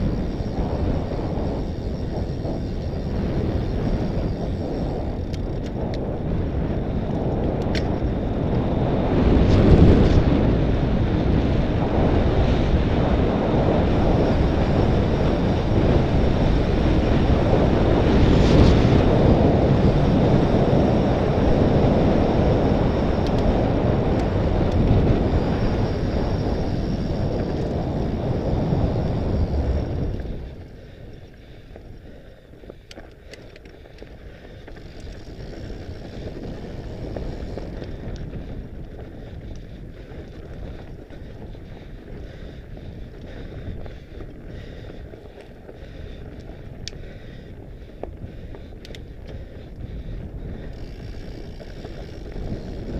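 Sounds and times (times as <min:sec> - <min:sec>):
bike clicks and knocks: 0:00.0 - 0:08.7, 0:22.7 - 0:25.8, 0:26.4 - 0:28.1, 0:29.9 - 0:52.9
bike tyres rolling over stones: 0:00.0 - 0:52.9
wind buffeting microphone: 0:00.0 - 0:52.9.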